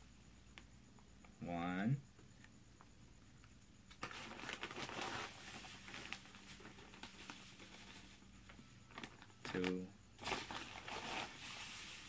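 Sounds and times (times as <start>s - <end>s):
plastic bag crinkling: 4.0s - 8.2s, 8.9s - 12.0s
powder poured into a bag: 8.9s - 12.0s.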